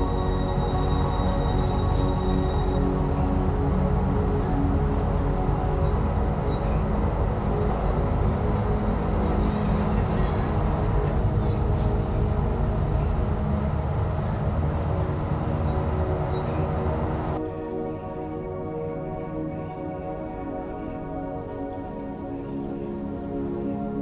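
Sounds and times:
train rumbling past: 0.0s - 17.5s.

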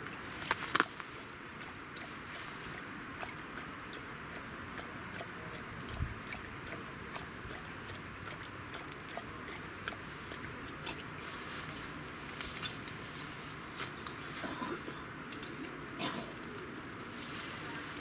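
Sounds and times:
outdoor hiss: 10.1s - 18.0s.

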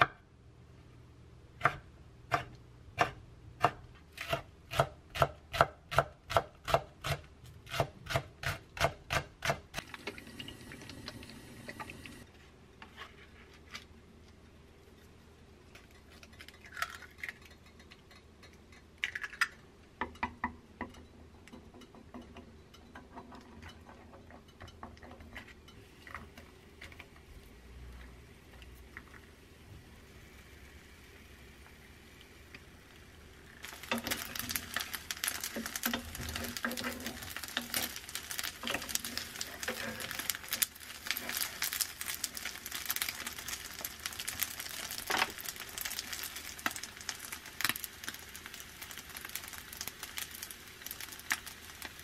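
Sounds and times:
ingredients clattering into pan: 33.6s - 48.2s.

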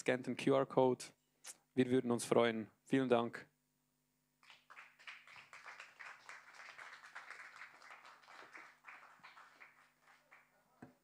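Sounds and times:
audience applause: 4.5s - 10.6s.

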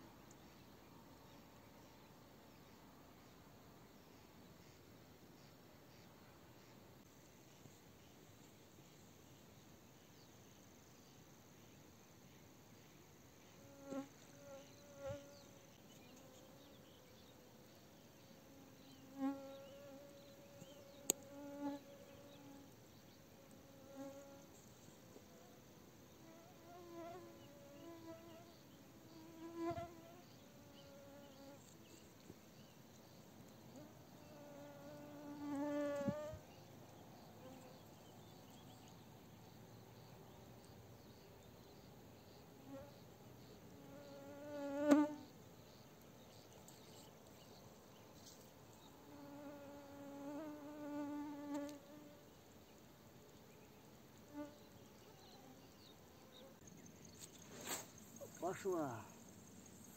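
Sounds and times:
small insect buzzing: 13.4s - 16.9s, 18.4s - 22.8s, 23.4s - 24.9s, 26.2s - 32.3s, 33.0s - 36.5s, 41.8s - 47.5s, 48.2s - 52.3s, 54.3s - 55.7s.

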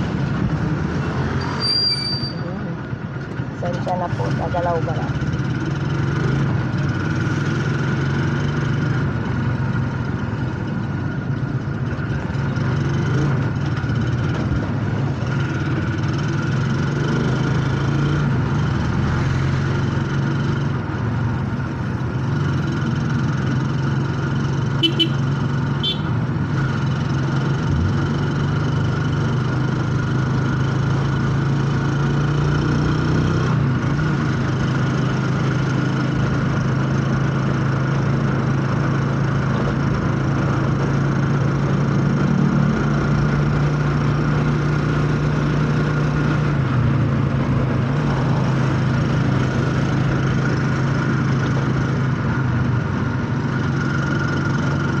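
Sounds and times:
vehicle engine humming: 0.0s - 55.0s.

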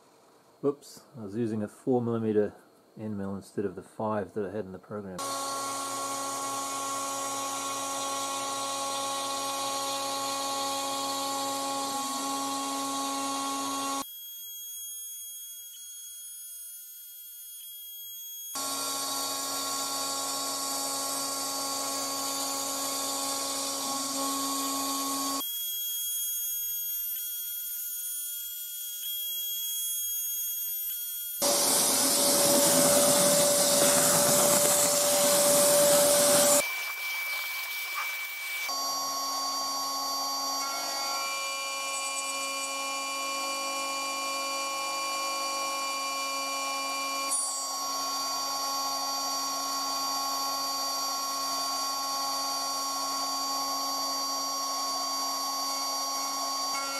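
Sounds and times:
router spindle milling: 5.2s - 14.0s, 18.6s - 25.4s, 31.4s - 38.7s
vacuum cleaner rushing: 31.4s - 38.3s.

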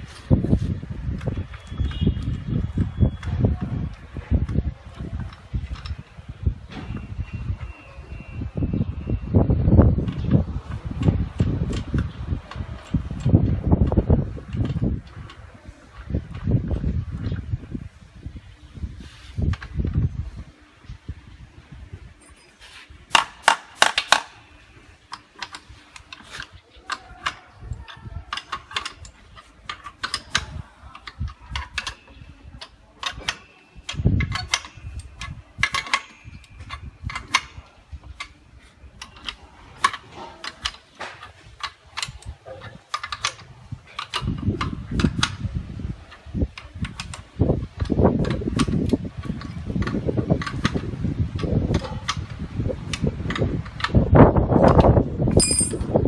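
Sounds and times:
metallic clicks of spanner and clamps: 1.1s - 6.1s, 25.1s - 38.4s, 39.0s - 45.4s, 47.8s - 52.3s, 52.9s - 56.0s.

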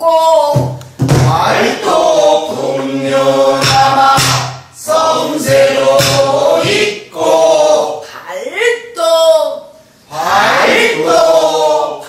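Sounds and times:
barrel drum strokes: 1.0s - 7.0s
voices singing in unison: 1.2s - 8.2s, 10.0s - 12.0s.

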